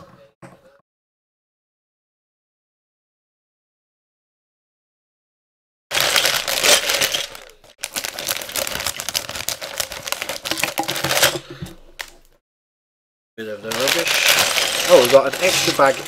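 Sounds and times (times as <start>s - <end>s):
plastic bag crinkling: 5.9s - 12.4s, 13.4s - 16.0s
plastic bricks clicking and rattling: 13.7s - 16.0s.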